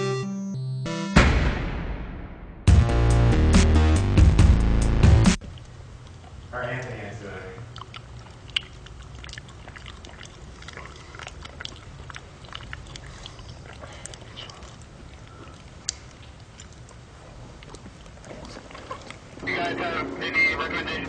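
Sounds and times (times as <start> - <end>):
person chewing banana: 7.6 - 19.4.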